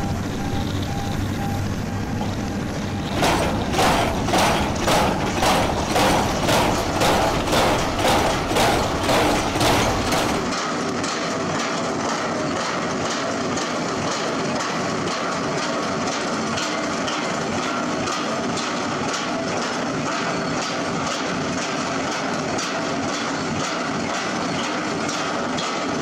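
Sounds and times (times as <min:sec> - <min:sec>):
machine running: 0:00.0 - 0:26.0
crawler tracks clanking: 0:02.2 - 0:10.6.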